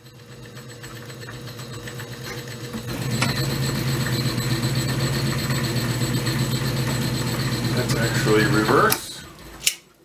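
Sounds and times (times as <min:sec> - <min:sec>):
lathe motor humming: 0:00.0 - 0:09.6
lathe click: 0:00.5 - 0:09.8.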